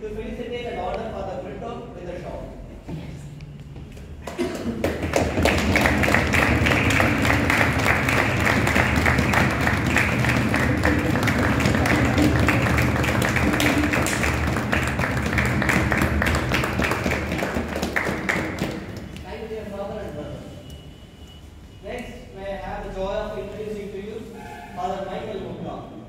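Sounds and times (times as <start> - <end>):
crowd clapping: 4.2 - 19.4.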